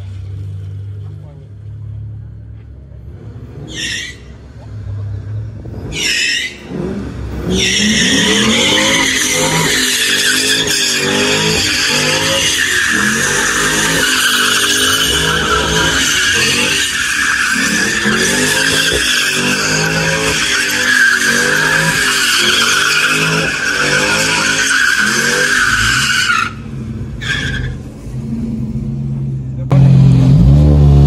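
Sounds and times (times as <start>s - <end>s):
car engine revving: 3.0s - 31.0s
tyres screeching on concrete: 3.6s - 4.4s, 5.8s - 27.9s.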